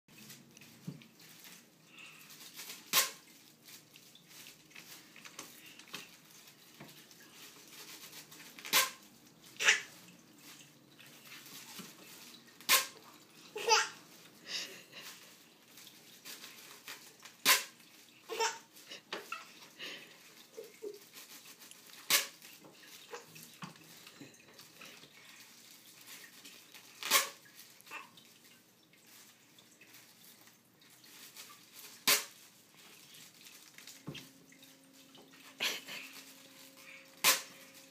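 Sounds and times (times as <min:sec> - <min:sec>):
baby laughing: 0:13.5 - 0:14.0, 0:18.3 - 0:19.6.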